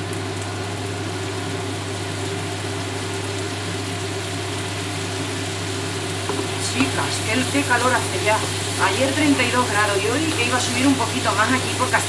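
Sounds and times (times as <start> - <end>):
vegetables sizzling in a frying pan: 0.0 - 12.0
steady low hum: 0.7 - 12.0.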